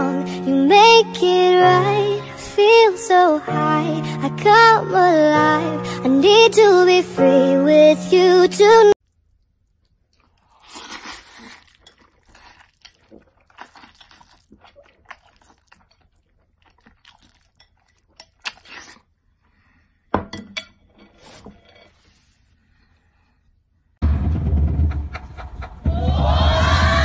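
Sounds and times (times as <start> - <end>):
man eating noodles: 9.1 - 19.4.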